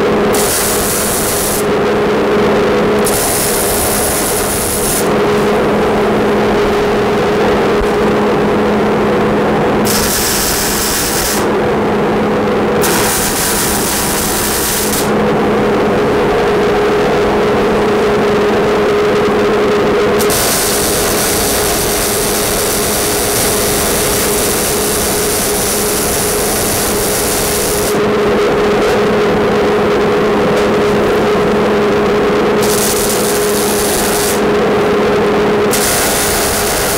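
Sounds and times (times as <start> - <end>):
welding arc sizzling: 0.0 - 1.8, 3.0 - 6.2, 9.8 - 11.6, 12.8 - 15.2, 20.2 - 28.1, 32.3 - 34.8, 35.7 - 36.9
fume extractor hum: 0.0 - 36.9.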